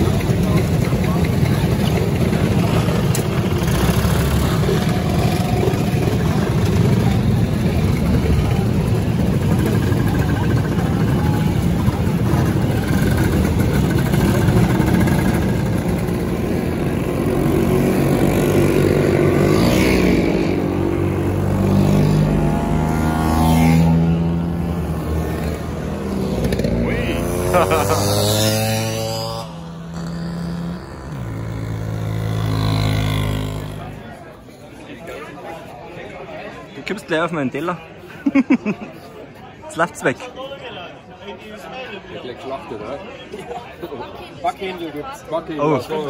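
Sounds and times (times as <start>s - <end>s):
scooter engine accelerating: 0.0s - 34.2s
scooter engines revving: 0.0s - 34.9s.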